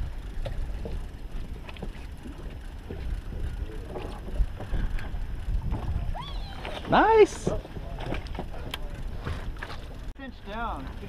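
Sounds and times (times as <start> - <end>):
fishing boat engine rumble: 0.0 - 11.0.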